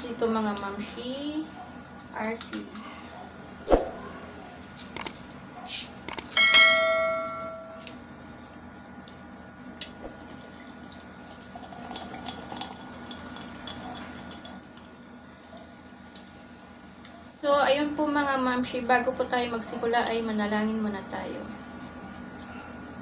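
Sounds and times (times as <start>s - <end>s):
glass clinking: 6.3s - 7.9s
cola pouring with fizz: 10.1s - 14.9s.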